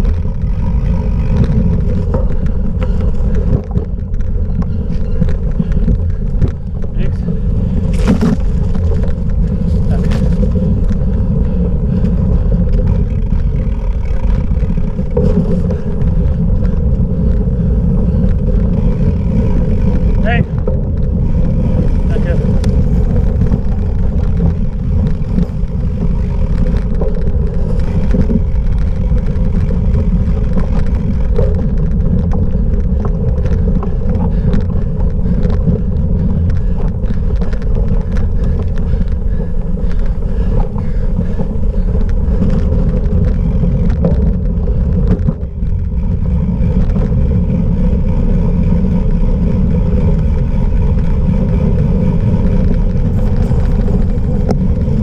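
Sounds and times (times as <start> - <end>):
bike rattles and clicks: 0.0 - 55.0
rumble of bike tyres: 0.0 - 55.0
wind on microphone: 0.0 - 55.0.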